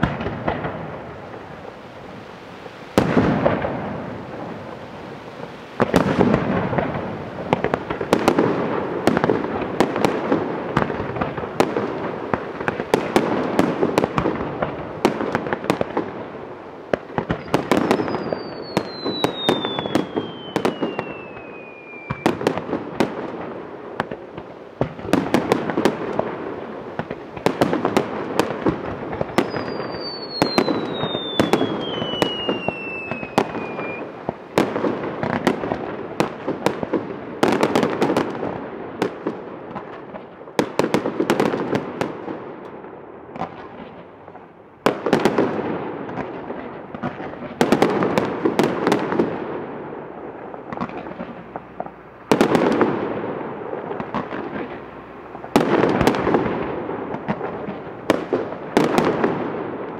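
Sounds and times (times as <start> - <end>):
fireworks bangs: 0.0 - 59.9
fireworks crackle: 0.0 - 59.9
falling firework whistle: 17.2 - 22.7, 27.0 - 34.7.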